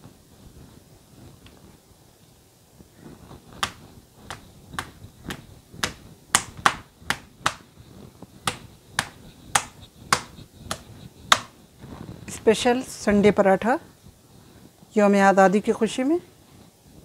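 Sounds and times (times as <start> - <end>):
dough slapping on countertop: 3.5 - 11.6.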